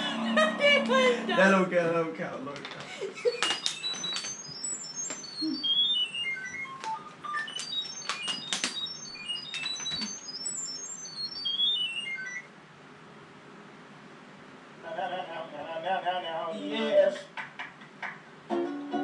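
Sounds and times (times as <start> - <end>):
electronic beep melody: 3.2 - 12.5
sharp clicks: 6.7 - 10.4.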